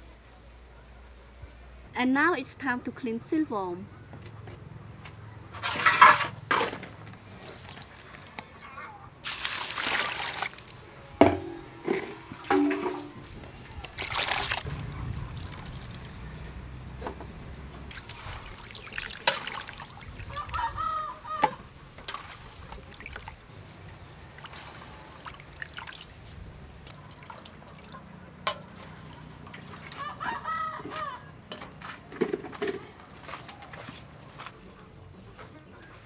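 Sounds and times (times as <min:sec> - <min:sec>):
water splashing and trickling: 0:07.2 - 0:08.2, 0:09.2 - 0:30.2
hands stirring in water: 0:13.7 - 0:14.7, 0:17.9 - 0:20.6
chicken calling: 0:20.2 - 0:21.8, 0:30.0 - 0:31.4.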